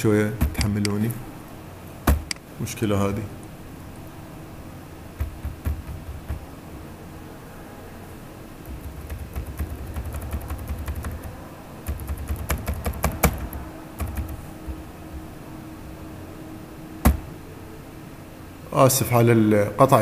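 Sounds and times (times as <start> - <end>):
computer keyboard typing: 8.6 - 14.4.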